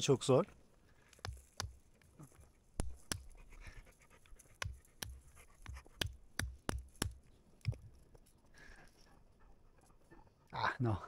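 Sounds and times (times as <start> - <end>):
walnut being struck: 1.1 - 1.8, 2.8 - 3.4, 4.6 - 7.8.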